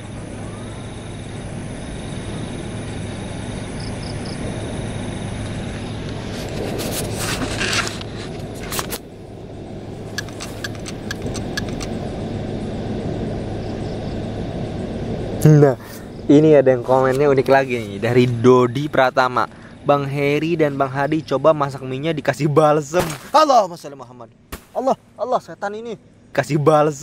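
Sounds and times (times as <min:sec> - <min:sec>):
low hum: 0:00.0 - 0:27.0
clicks and rustling: 0:06.3 - 0:09.0, 0:10.1 - 0:12.0.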